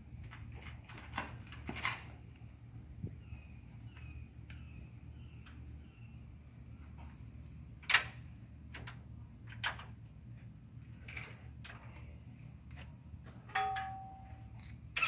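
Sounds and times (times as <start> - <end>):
ringing metal tone: 13.6 - 14.4.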